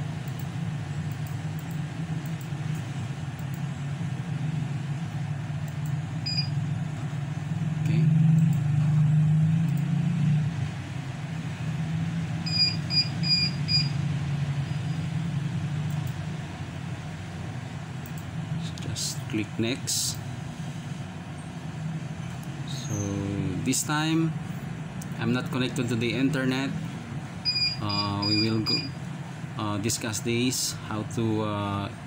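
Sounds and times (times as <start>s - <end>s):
steady low hum: 0.0s - 32.0s
short high electronic beeps: 12.5s - 14.0s, 27.5s - 29.0s.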